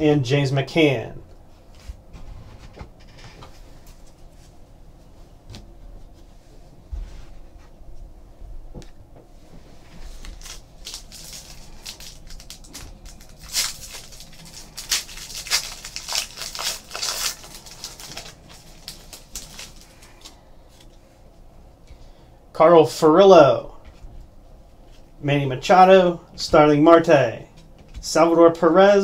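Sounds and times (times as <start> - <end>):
card wrapper tearing and crinkling: 10.2 - 20.9.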